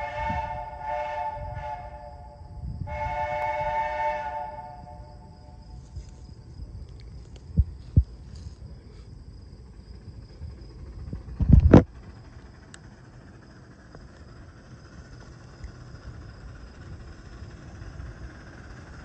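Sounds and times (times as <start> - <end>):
train whistle chord: 0.0 - 5.6.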